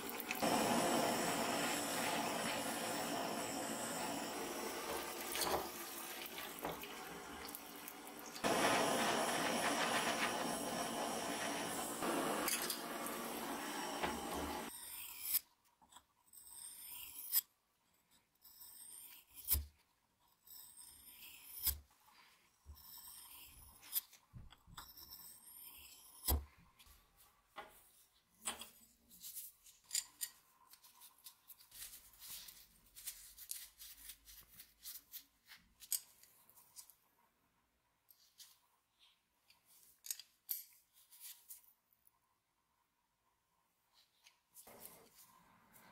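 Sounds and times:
hot blade sizzling in liquid: 0.0s - 14.7s.

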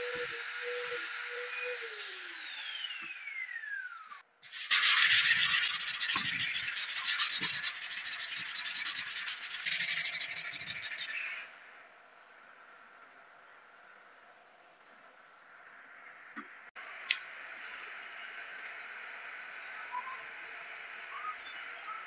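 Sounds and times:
orbital sander motor whining: 0.0s - 11.4s
hand sanding wood scratchy strokes: 4.4s - 11.2s.

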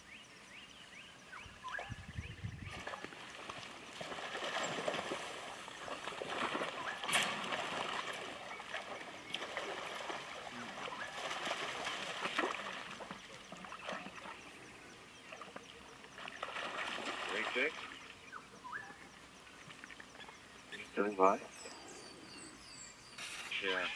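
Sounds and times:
water splashing and sloshing: 2.6s - 20.6s.

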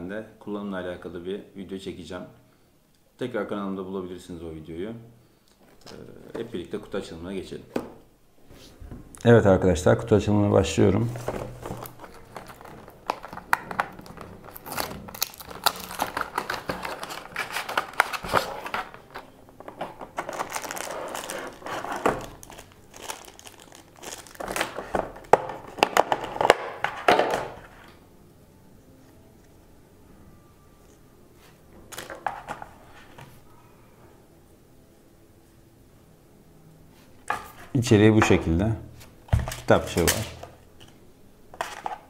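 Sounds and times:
cardboard and plastic packaging crinkling: 11.0s - 27.0s.

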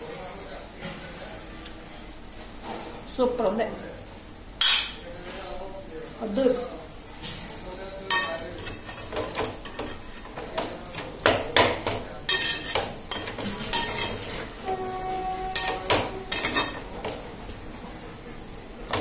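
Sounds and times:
metal spatula scraping metal pot: 12.3s - 17.2s.

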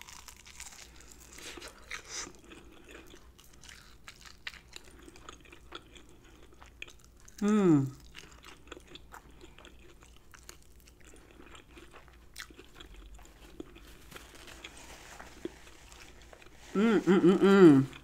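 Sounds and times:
chewing crispy food: 0.0s - 16.7s
person humming mm-mm: 7.4s - 8.0s, 16.7s - 18.0s.

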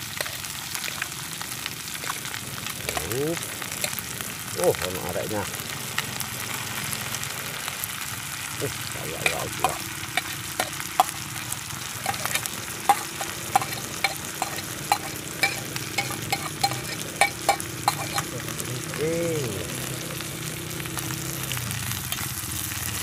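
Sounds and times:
hot oil sizzling in a pan: 0.0s - 23.0s
fish scraped into pan: 9.2s - 11.3s, 12.0s - 18.4s
metal spoon clinking on plate: 9.2s - 11.3s, 12.0s - 18.4s.

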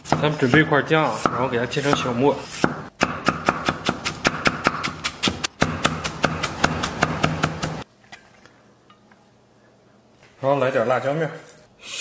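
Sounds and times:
cleaver chopping on wooden block: 0.0s - 7.8s.

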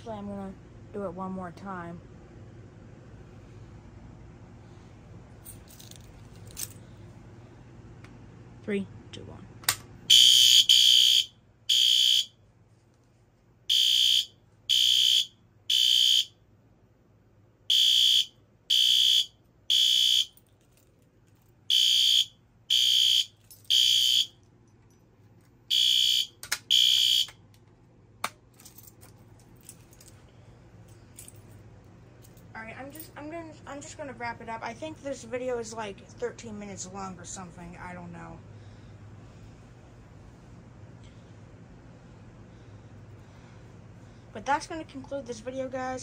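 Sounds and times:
fire alarm horn blasts: 10.1s - 12.4s, 13.7s - 16.4s, 17.7s - 20.4s, 21.7s - 24.4s, 25.7s - 27.4s.

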